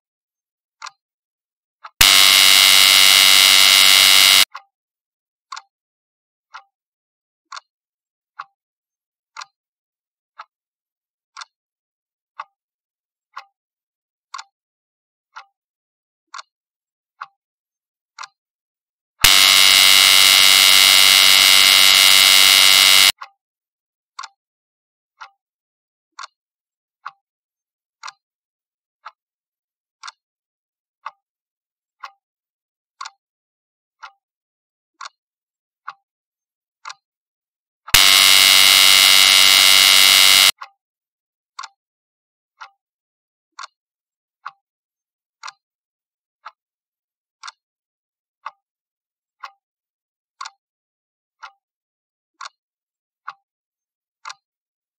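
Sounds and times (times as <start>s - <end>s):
loud buzzer: 2.0s - 4.5s, 19.2s - 23.2s, 38.0s - 40.5s
clock ticking: 19.3s - 23.1s.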